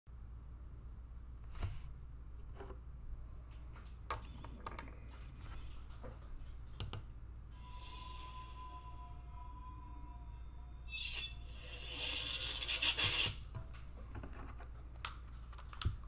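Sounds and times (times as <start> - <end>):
electronic tone with hiss: 7.6 - 13.1.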